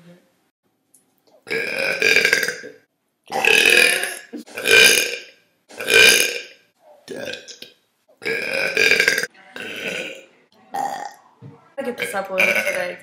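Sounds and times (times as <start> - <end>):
woman burping loudly: 1.4 - 11.2, 12.0 - 13.0.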